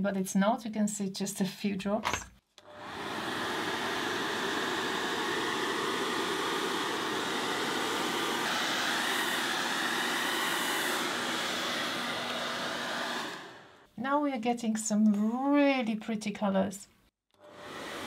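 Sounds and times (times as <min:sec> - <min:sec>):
hair dryer running: 0:02.6 - 0:13.9, 0:17.4 - 0:18.0.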